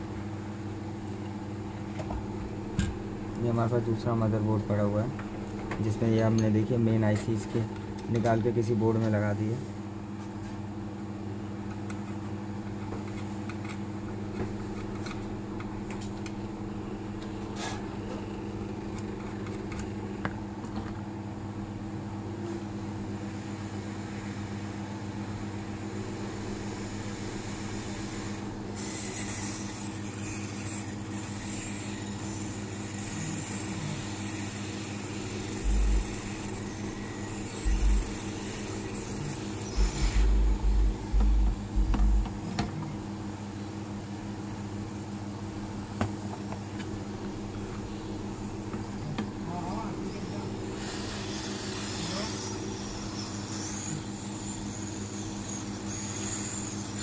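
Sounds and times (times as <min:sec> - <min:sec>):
electric motor humming: 0:26.0 - 0:43.0, 0:49.8 - 0:57.0
air hissing: 0:34.2 - 0:41.2
low thumps: 0:35.6 - 0:36.2, 0:37.6 - 0:38.2, 0:39.8 - 0:42.6.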